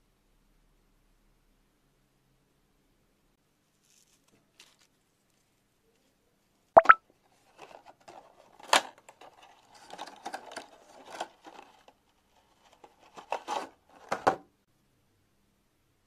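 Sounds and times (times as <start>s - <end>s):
sharp double click: 6.8s - 7.0s
plastic packaging crinkling: 7.5s - 14.3s.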